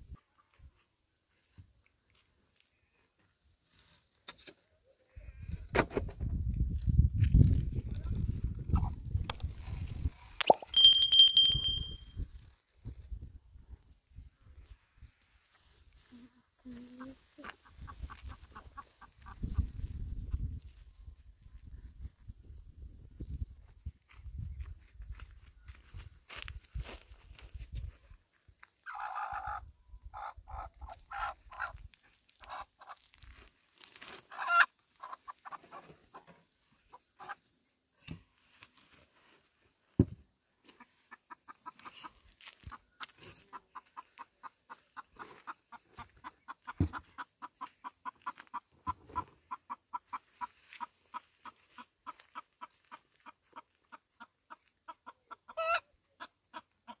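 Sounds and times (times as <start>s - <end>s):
chickens clucking: 40.7s - 57.0s.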